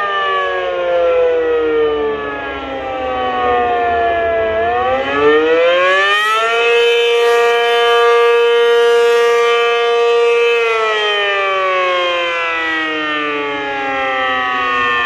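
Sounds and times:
rotating siren wailing: 0:00.0 - 0:15.0.

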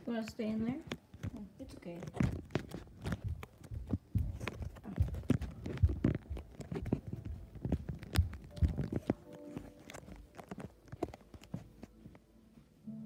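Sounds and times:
footsteps on tiled floor: 0:00.0 - 0:12.8.

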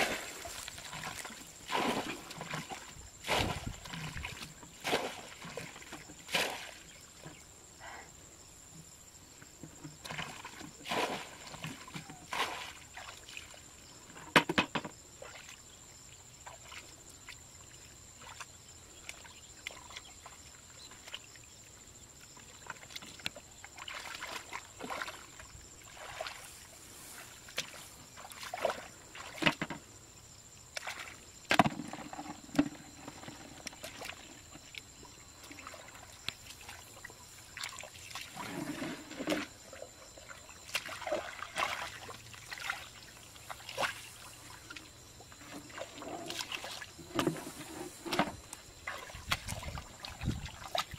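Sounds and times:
boots squelching in wet mud: 0:00.0 - 0:05.7.

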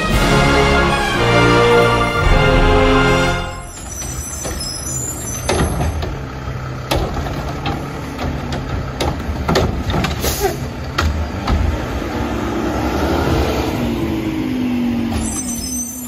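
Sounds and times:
diesel engine droning: 0:00.0 - 0:16.0
metal clanks and knocks: 0:03.5 - 0:11.8.

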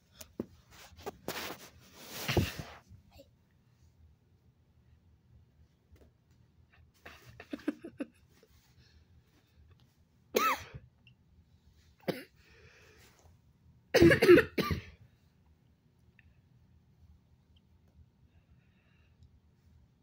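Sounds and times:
person coughing: 0:10.4 - 0:10.8, 0:12.0 - 0:12.3, 0:13.9 - 0:15.0
person clearing throat: 0:14.0 - 0:15.0.

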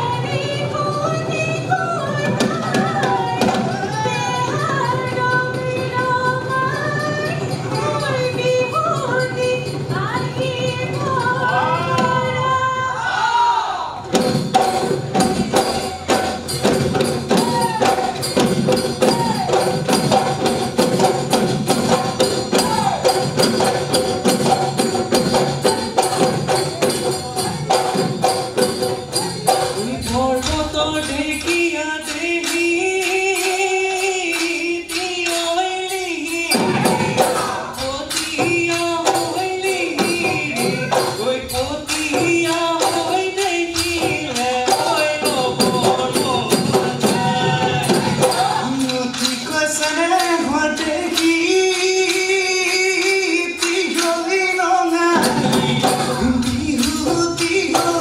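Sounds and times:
jingling percussion: 0:00.0 - 0:13.0, 0:14.0 - 0:58.0
drums playing fast beat: 0:00.0 - 0:13.2, 0:13.9 - 0:58.0
person singing: 0:24.5 - 0:58.0.

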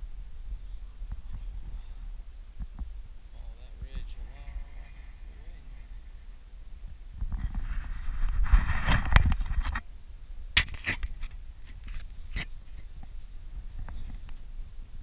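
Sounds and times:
wind buffeting microphone: 0:00.0 - 0:15.0
camera handling rubbing: 0:10.6 - 0:12.9.

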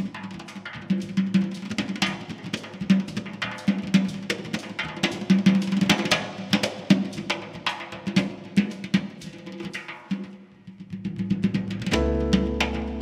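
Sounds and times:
hand drums playing fast: 0:00.0 - 0:13.0
deep drum accent: 0:11.1 - 0:13.0.

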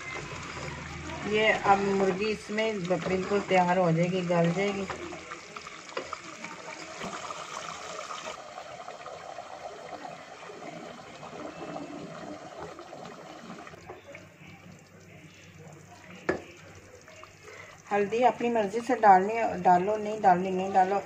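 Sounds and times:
wooden spoon stirring: 0:00.0 - 0:07.6
curry bubbling in a pot: 0:00.0 - 0:21.0.

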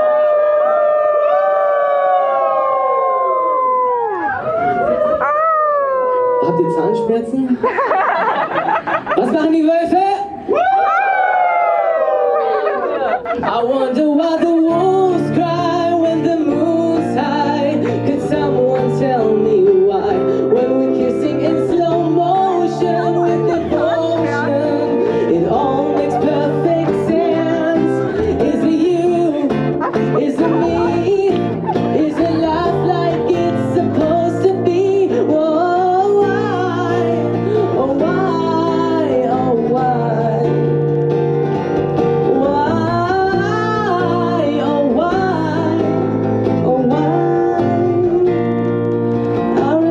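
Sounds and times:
person singing into microphone: 0:00.0 - 0:03.9, 0:13.4 - 0:40.8, 0:42.1 - 0:49.9
guitar accompaniment: 0:00.0 - 0:49.9.

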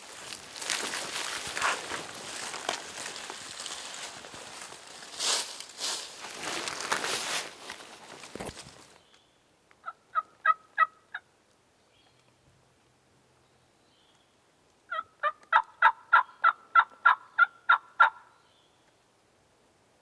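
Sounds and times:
turkey yelps: 0:09.8 - 0:11.2, 0:14.9 - 0:18.3.

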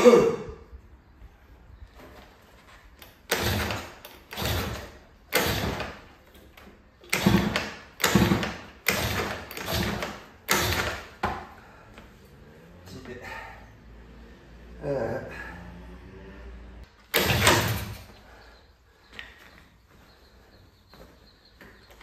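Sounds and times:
scooter engine kick-start attempts: 0:03.0 - 0:11.6, 0:17.0 - 0:18.4.

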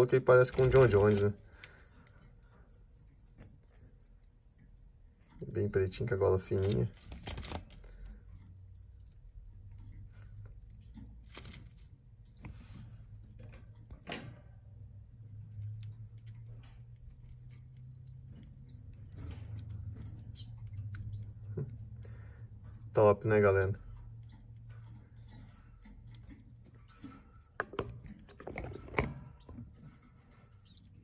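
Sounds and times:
low steady hum: 0:00.0 - 0:31.0
nestling begging squeaks: 0:00.3 - 0:05.7, 0:06.4 - 0:07.6, 0:08.7 - 0:09.0, 0:09.8 - 0:10.0, 0:13.9 - 0:14.2, 0:15.6 - 0:31.0.

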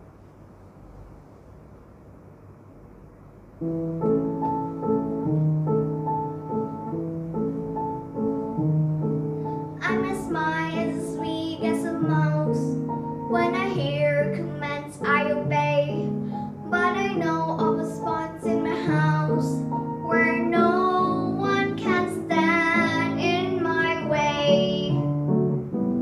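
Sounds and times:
upright piano accompaniment: 0:03.2 - 0:26.0
girl singing: 0:09.7 - 0:25.2.

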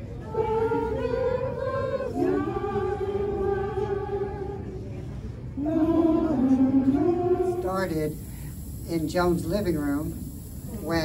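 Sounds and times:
women singing a cappella: 0:00.0 - 0:08.3.

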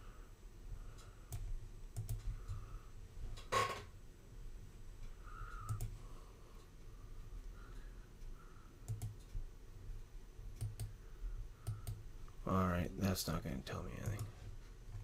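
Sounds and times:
mouse and keyboard clicks: 0:02.0 - 0:02.3.

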